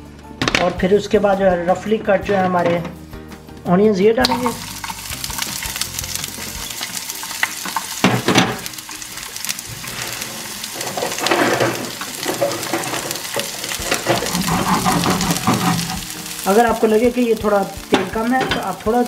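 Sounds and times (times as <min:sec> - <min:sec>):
onion sizzling in hot oil: 0:04.2 - 0:19.0.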